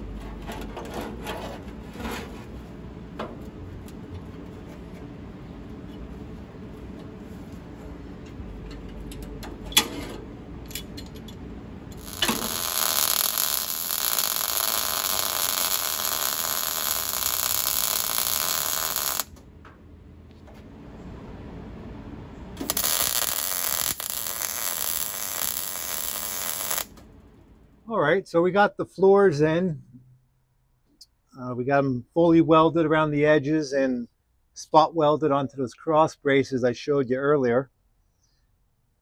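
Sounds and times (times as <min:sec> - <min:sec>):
welder sizzling: 0:11.9 - 0:19.4, 0:22.6 - 0:27.0.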